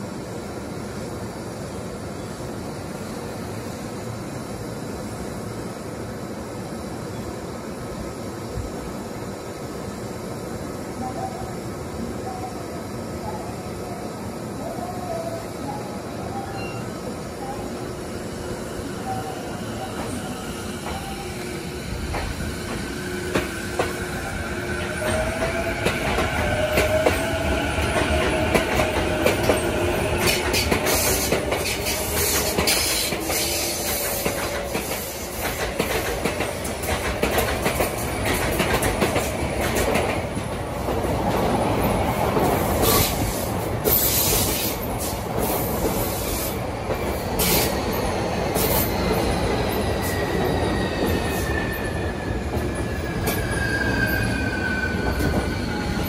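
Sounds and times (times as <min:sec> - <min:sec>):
rumbling rail noise: 0:00.0 - 0:56.0
train wheel squeal: 0:14.6 - 0:40.2, 0:41.8 - 0:56.0.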